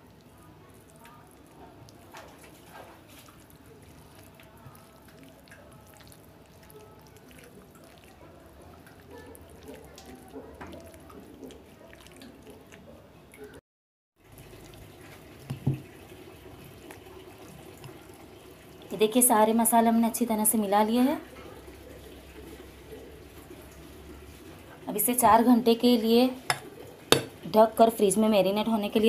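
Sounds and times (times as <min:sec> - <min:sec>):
soft wet squelching: 0:00.0 - 0:13.6.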